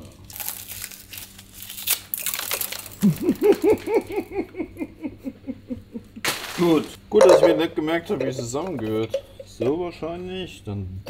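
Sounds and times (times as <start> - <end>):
plastic wrapping crinkling: 0.0 - 4.2, 6.2 - 7.0
man laughing: 3.0 - 6.2.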